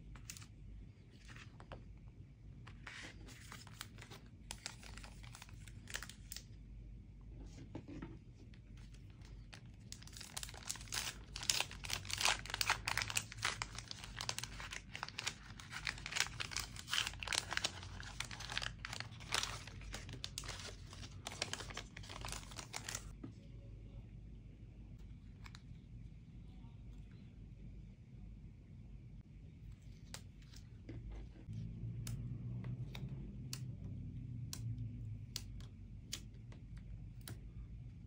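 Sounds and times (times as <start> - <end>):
packaging crinkling and tearing: 3.0 - 6.5, 9.2 - 23.1.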